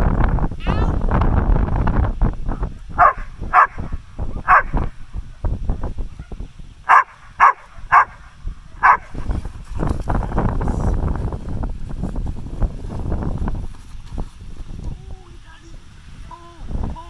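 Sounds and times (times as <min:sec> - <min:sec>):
dog barking: 0:03.0 - 0:04.8, 0:06.1 - 0:08.2, 0:08.8 - 0:09.1.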